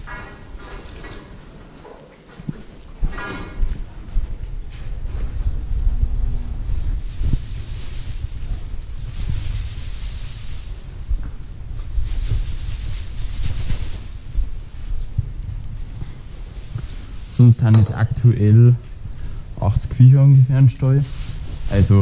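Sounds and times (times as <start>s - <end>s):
microphone handling noise: 3.6s - 22.0s
wind rumble: 3.6s - 22.0s
straw rustling and swishing: 6.8s - 15.1s, 15.8s - 17.6s, 20.4s - 22.0s.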